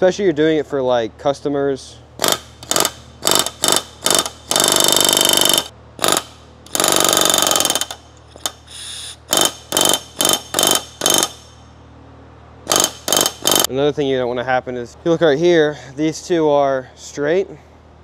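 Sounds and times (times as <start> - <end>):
pneumatic rivet gun hammering: 2.2 - 11.6, 12.6 - 13.7.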